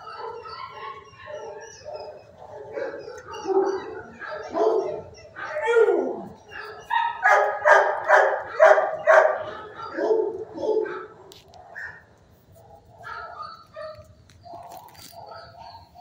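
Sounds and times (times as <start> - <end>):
dog whining: 0.0 - 7.2
dogs barking and yelping: 0.0 - 16.0.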